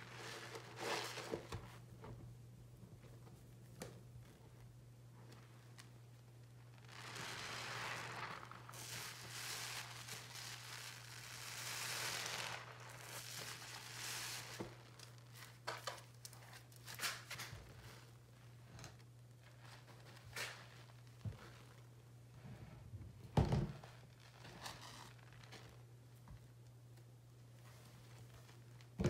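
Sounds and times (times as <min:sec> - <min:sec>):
sponge squelching in soapy water: 0:00.0 - 0:01.9, 0:06.5 - 0:15.6
foam crackling and popping: 0:05.3 - 0:21.9.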